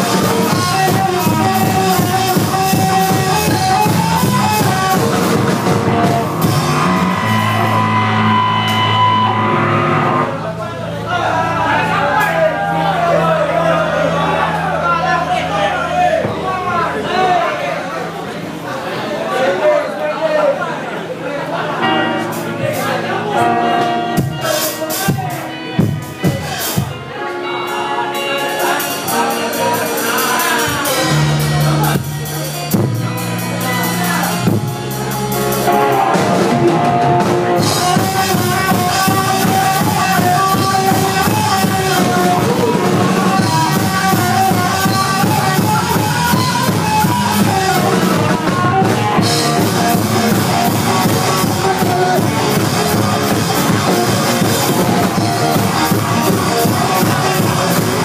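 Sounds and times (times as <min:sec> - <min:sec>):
drum hits: 0:00.0 - 0:10.3
held bass notes: 0:00.0 - 0:18.7, 0:21.7 - 0:58.0
live rock band playing: 0:00.0 - 0:19.0, 0:21.6 - 0:58.0.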